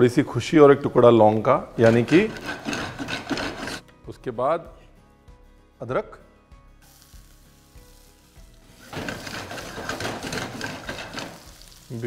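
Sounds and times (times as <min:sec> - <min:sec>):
ginger sizzling in hot oil: 0:06.8 - 0:12.0.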